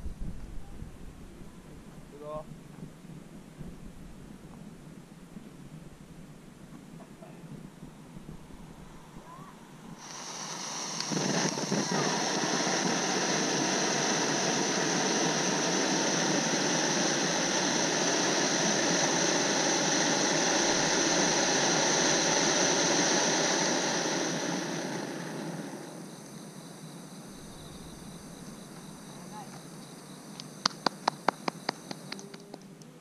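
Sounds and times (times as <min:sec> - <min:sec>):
firework fountain hissing: 0:02.1 - 0:33.0.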